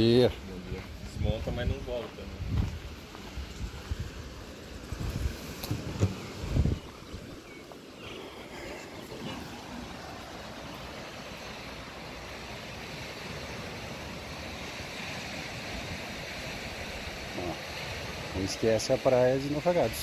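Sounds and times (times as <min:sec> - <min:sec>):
small waves washing on beach: 0:00.0 - 0:20.0
wind on microphone: 0:00.7 - 0:07.6.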